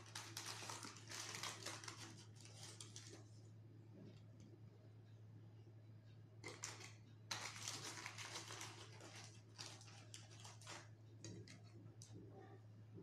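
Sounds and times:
paper wrapper crinkling: 0.0s - 3.4s, 6.4s - 12.2s.

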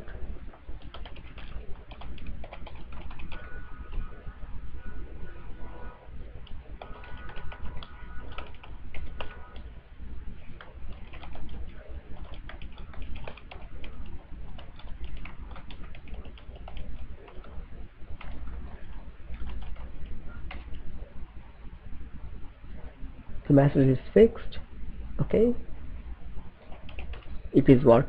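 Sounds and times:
steady low hum: 0.0s - 28.0s
keyboard typing: 0.6s - 4.1s, 6.4s - 9.7s, 10.5s - 20.8s, 26.6s - 27.4s.

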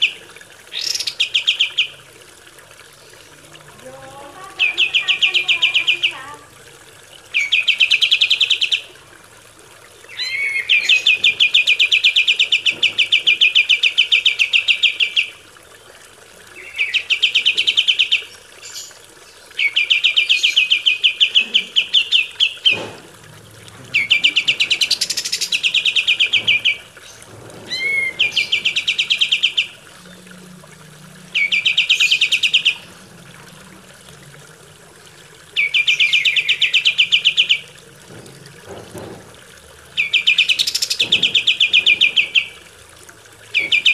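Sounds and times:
bulbul singing rattling trills: 23.9s - 30.3s, 31.3s - 33.1s, 35.6s - 37.8s, 40.0s - 42.6s, 43.5s - 43.9s.

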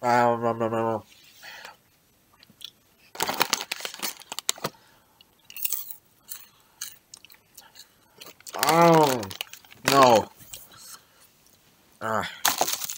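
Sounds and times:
popcorn crunching while chewed: 2.4s - 4.8s, 5.5s - 10.8s, 12.4s - 12.9s.

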